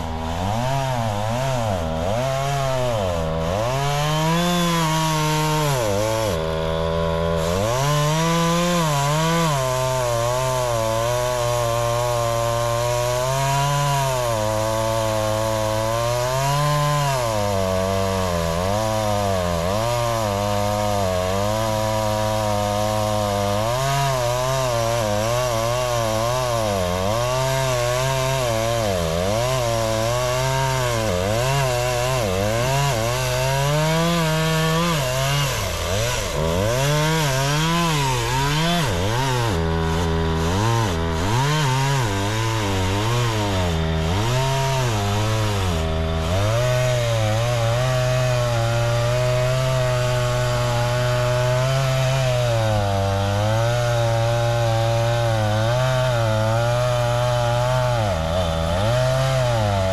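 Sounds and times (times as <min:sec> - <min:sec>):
chainsaw cutting tree trunk: 0:00.0 - 0:59.9.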